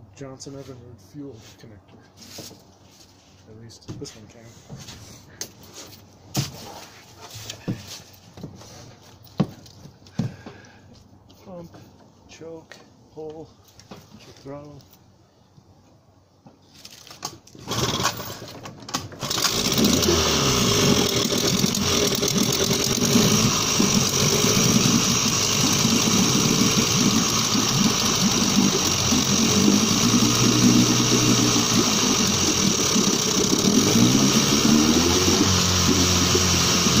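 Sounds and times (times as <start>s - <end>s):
outboard engine running: 19.2s - 37.0s.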